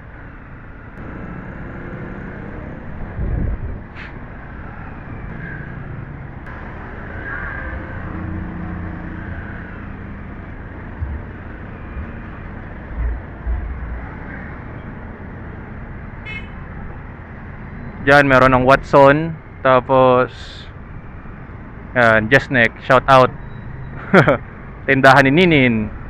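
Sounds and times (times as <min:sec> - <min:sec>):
road and wind noise: 0:00.0 - 0:26.0
low thumps: 0:10.9 - 0:12.2.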